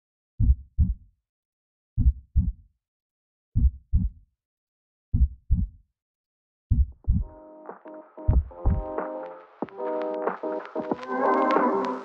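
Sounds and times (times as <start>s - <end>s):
heartbeat double thumps: 0.4s - 1.0s, 2.0s - 2.6s, 3.6s - 4.2s, 5.2s - 5.8s, 6.7s - 7.3s, 8.3s - 8.9s.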